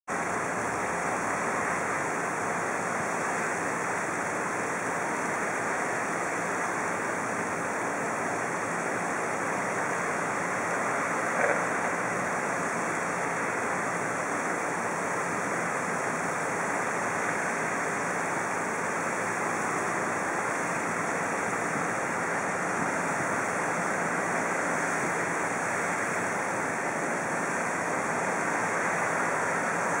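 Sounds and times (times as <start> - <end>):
fountain water splashing: 0.1 - 30.0.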